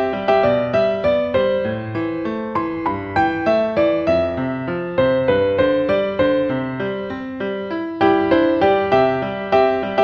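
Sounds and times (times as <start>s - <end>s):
gentle piano melody: 0.0s - 10.0s.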